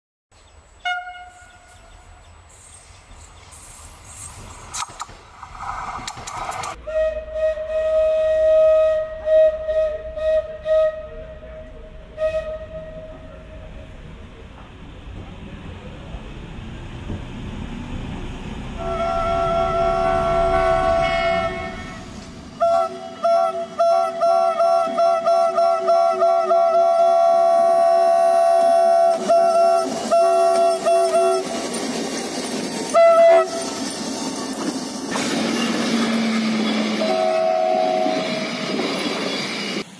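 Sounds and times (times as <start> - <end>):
locomotive horn: 0.8 - 2.2, 6.8 - 14.0, 18.8 - 31.6, 32.9 - 33.8, 36.7 - 38.7
wheels clicking over rails: 4.4 - 6.8.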